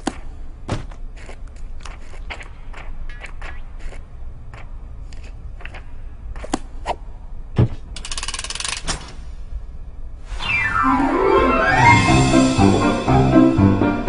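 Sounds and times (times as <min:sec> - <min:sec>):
soft orchestral music: 0:10.4 - 0:14.0.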